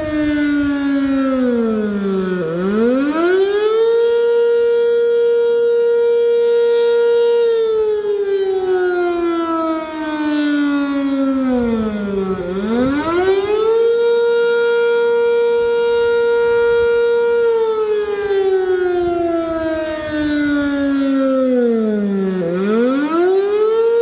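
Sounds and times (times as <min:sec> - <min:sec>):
warning siren wailing: 0:00.0 - 0:24.0.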